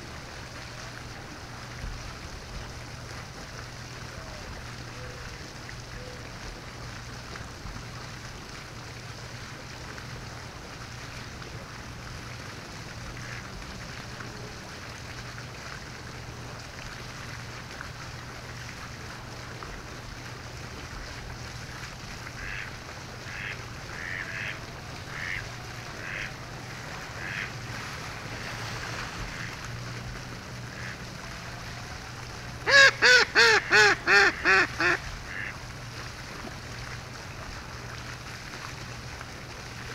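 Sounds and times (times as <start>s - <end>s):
duck quacking: 23.3s - 25.4s, 26.0s - 26.3s, 27.2s - 27.5s, 32.7s - 35.5s.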